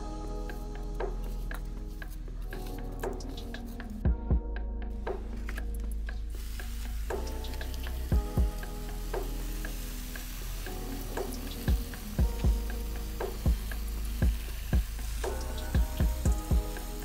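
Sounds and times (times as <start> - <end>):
music with thumping beat: 0.1 - 17.0
hose water spraying: 5.1 - 17.0.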